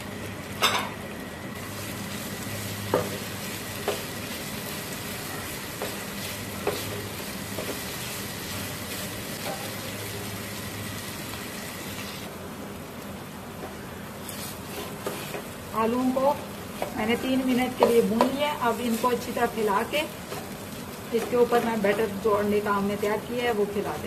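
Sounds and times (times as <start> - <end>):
potato sizzling in oil: 0.0 - 24.0
spatula scraping a frying pan: 14.2 - 15.6.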